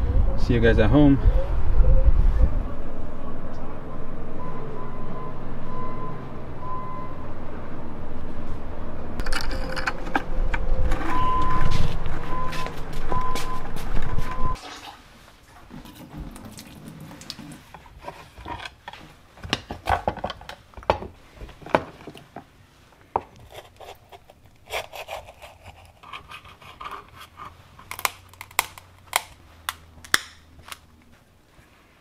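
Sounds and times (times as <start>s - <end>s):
knife scraping clam shell: 23.4s - 29.2s.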